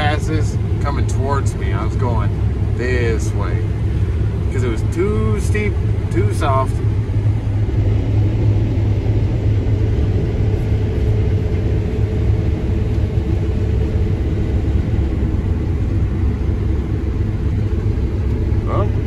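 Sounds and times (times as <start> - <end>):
combine harvester running: 0.0 - 19.0.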